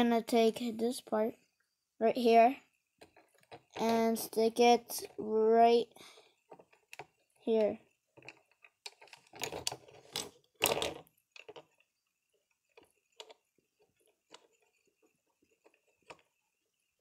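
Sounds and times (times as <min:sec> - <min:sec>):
small plastic clicks: 0:06.3 - 0:16.9
plastic bricks clattering: 0:08.2 - 0:11.9.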